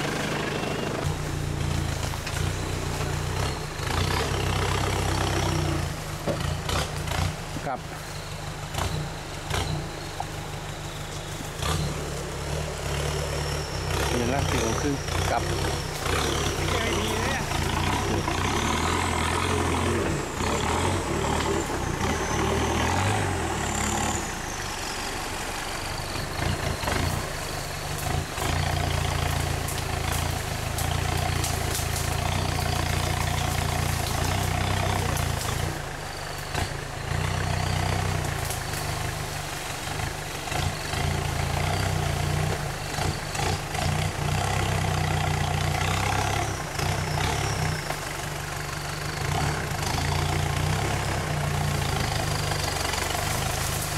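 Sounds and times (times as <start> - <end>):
vehicle engine running low: 0.0 - 53.9
sharp cracks and knocks: 29.6 - 32.2.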